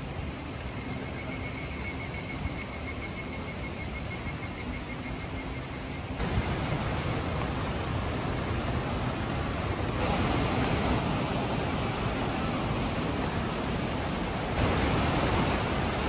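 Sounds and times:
faint high insect drone: 0:00.0 - 0:16.0
mountain stream rushing: 0:00.0 - 0:16.0.

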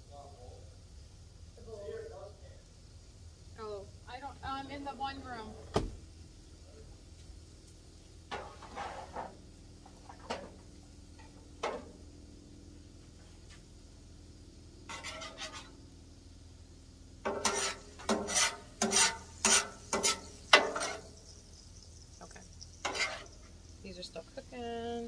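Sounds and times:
metal utensils scraping griddle: 0:08.3 - 0:09.4, 0:14.8 - 0:15.8, 0:17.2 - 0:21.3, 0:22.8 - 0:23.5.

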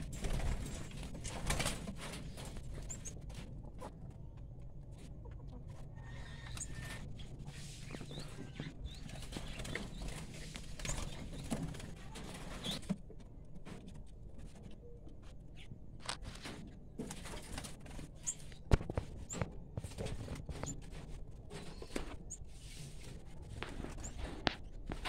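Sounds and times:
small birds chirping: 0:05.3 - 0:12.9.

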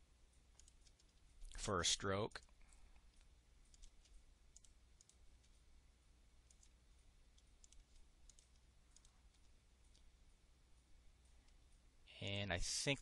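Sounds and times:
low steady hum: 0:00.0 - 0:13.0
computer mouse clicks: 0:00.5 - 0:01.6, 0:02.4 - 0:05.6, 0:06.4 - 0:10.1.

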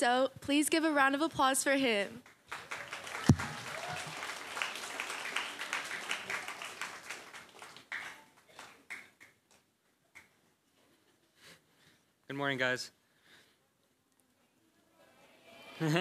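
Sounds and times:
audience applauding: 0:02.4 - 0:09.4
microphone thump: 0:03.2 - 0:03.6.

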